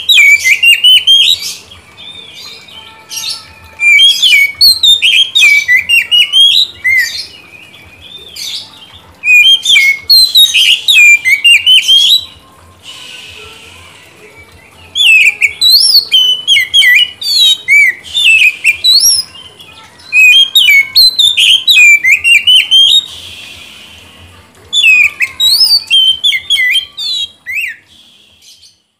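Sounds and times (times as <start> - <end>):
bird singing whistles and chirps: 0.0 - 28.8.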